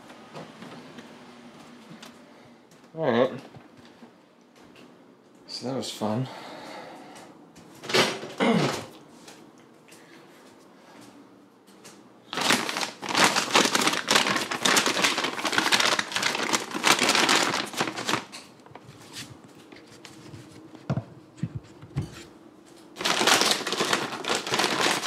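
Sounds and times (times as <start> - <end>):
plastic bag crinkling: 12.3 - 19.1, 23.0 - 25.0.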